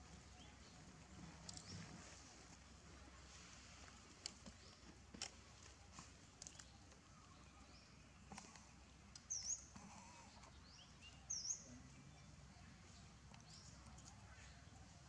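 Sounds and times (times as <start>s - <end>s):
faint clicks: 3.9s - 7.0s.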